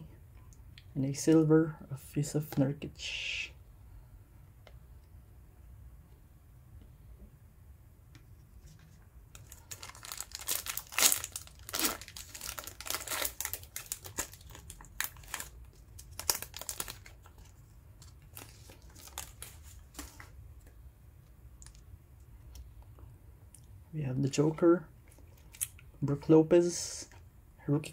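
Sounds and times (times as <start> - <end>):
plastic wrapper tearing and crinkling: 9.3 - 20.3.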